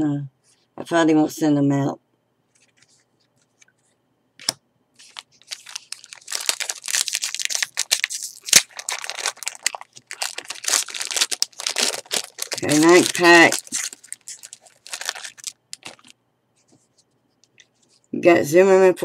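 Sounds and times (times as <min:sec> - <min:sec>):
foil wrapper tearing and crinkling: 0:05.0 - 0:16.2.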